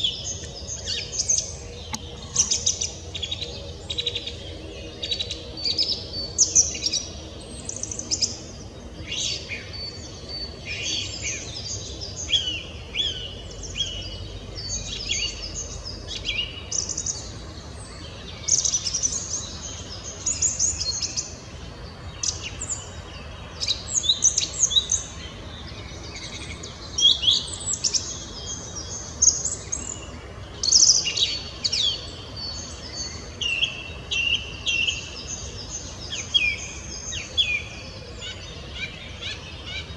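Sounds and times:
song thrush singing: 0.0 - 39.9.

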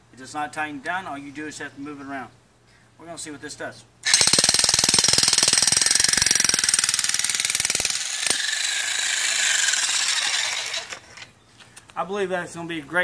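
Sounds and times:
power tool whirring: 4.0 - 11.3.

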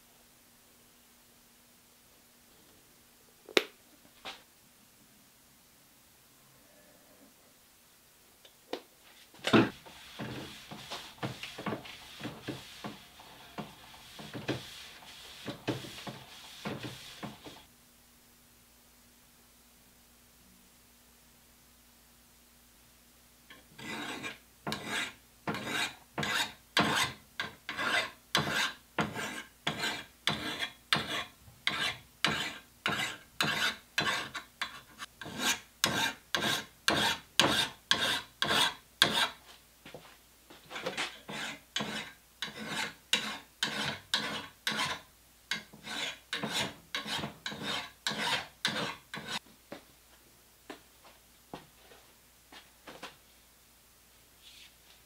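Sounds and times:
file rasping on steel: 9.7 - 17.6, 23.8 - 39.4, 41.2 - 49.4.

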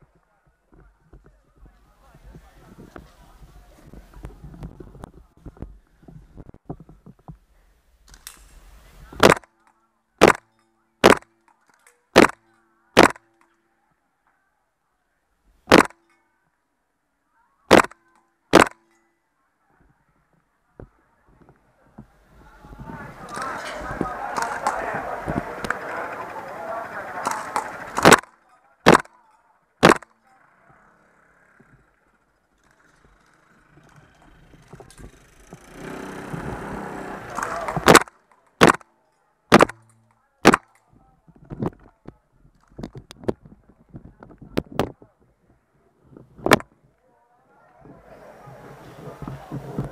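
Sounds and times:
airsoft rifle shots: 9.2 - 9.6, 10.2 - 11.4, 12.1 - 13.4, 15.7 - 16.0, 17.7 - 18.9, 23.3 - 29.2, 29.8 - 30.2, 37.2 - 38.9, 39.5 - 40.8.

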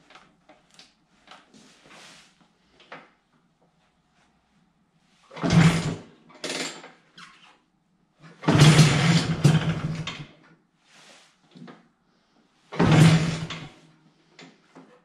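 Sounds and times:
scooter kick-start: 5.3 - 7.0, 8.4 - 10.4, 12.8 - 13.8
engine sputtering: 8.4 - 10.2.

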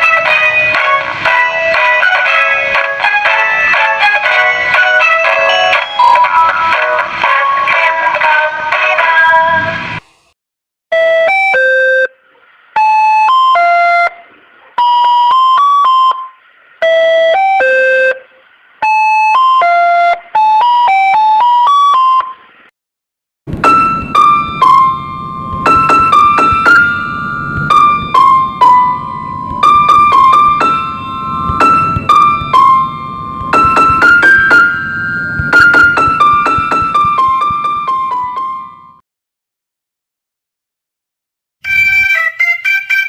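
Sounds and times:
keyboard-style melody: 0.0 - 8.5, 10.9 - 12.2, 12.8 - 22.4, 23.5 - 39.0, 41.6 - 43.0
beeping electronic tune: 23.5 - 39.0.

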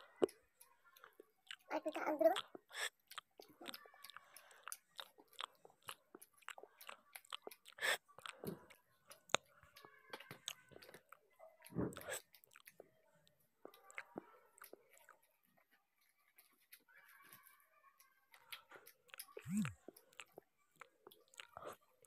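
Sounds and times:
chewing with wet mouth clicks: 0.0 - 17.4, 18.0 - 22.0
food crunches: 2.4 - 8.4.

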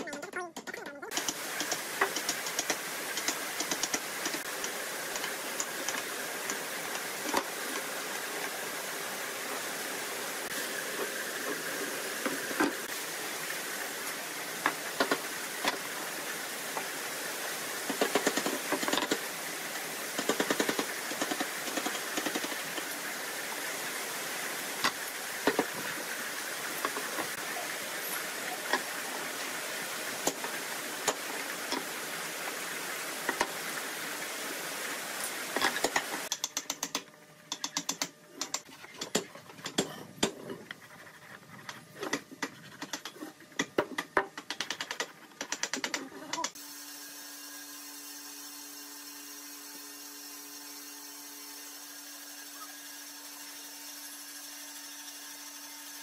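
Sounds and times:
steady hiss: 1.1 - 38.6
pencil scratching on wood: 40.6 - 43.3.

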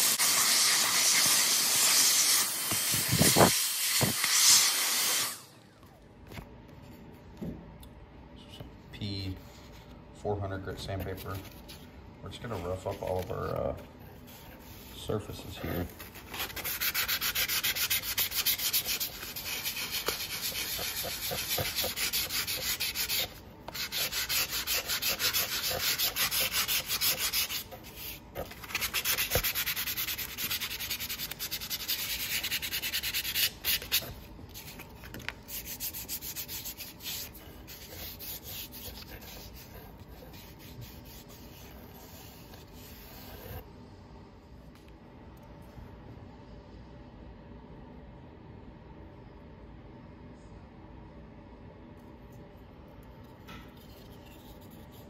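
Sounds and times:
sandpaper scratching strokes: 16.0 - 34.0, 35.5 - 43.6.

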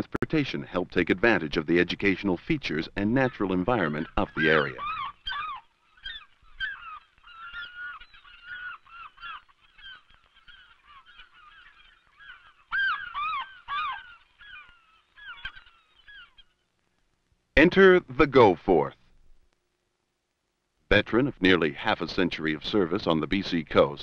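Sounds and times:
birds honking: 3.2 - 16.4.

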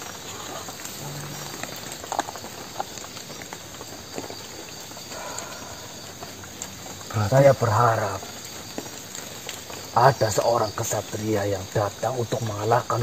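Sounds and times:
faint crackles and ticks: 0.0 - 13.0
steady hiss: 0.0 - 13.0
low hum: 1.0 - 2.2.

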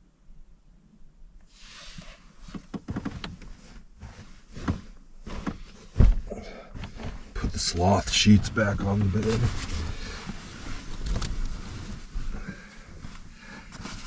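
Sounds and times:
bedding rustling: 1.8 - 14.0
heavy thump: 5.4 - 7.8.

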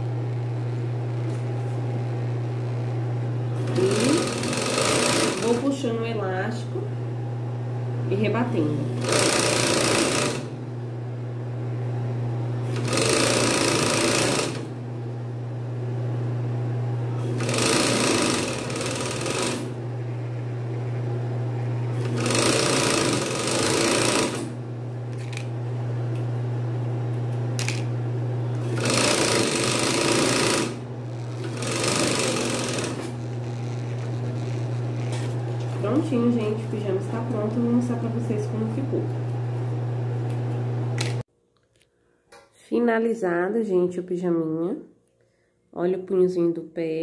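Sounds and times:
sewing machine motor humming: 0.0 - 6.5, 8.0 - 10.8, 12.4 - 15.0, 16.8 - 41.2
sewing machine stitching: 3.6 - 5.7, 9.0 - 10.6, 12.6 - 14.8, 17.2 - 19.8, 21.9 - 24.6, 28.6 - 36.2.

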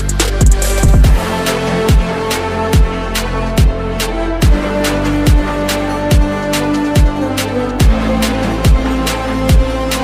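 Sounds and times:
background music with steady beat: 0.0 - 10.0
deep kick drum: 0.4 - 1.3, 7.8 - 10.0.

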